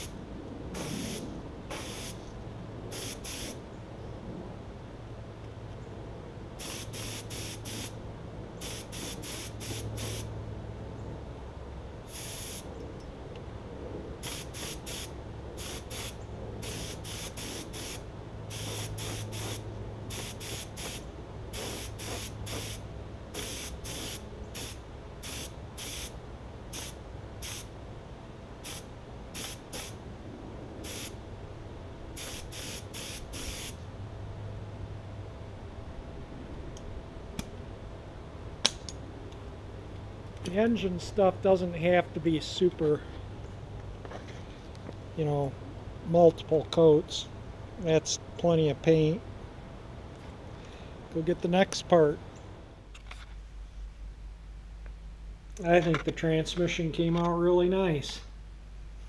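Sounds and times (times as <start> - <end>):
spray gun hissing bursts: 0.8 - 2.2, 2.9 - 3.6, 6.6 - 8.0, 8.6 - 10.3, 12.1 - 12.7, 14.2 - 22.8, 23.4 - 27.7, 28.6 - 28.8, 29.4 - 30.0, 30.8 - 31.2, 32.2 - 33.8.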